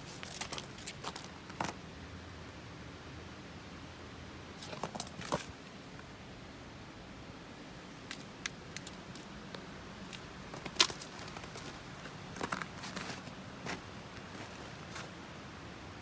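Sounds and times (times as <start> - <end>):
light footsteps and scuffs: 10.0 - 15.2.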